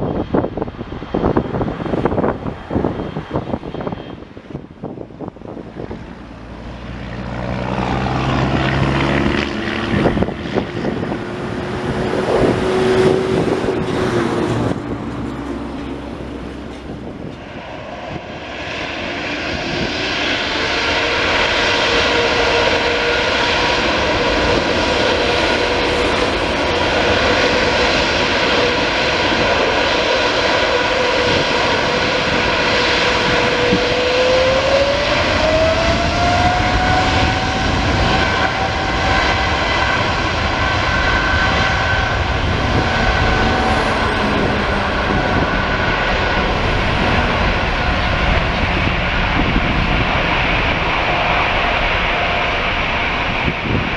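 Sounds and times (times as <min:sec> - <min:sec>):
jet engine whine rising: 0:00.0 - 0:53.9
jet engines roaring: 0:00.0 - 0:53.9.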